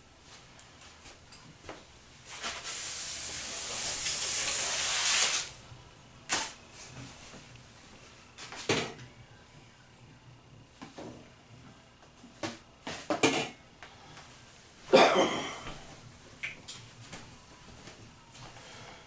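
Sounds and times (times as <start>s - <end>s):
hair spray hissing: 2.3s - 5.6s.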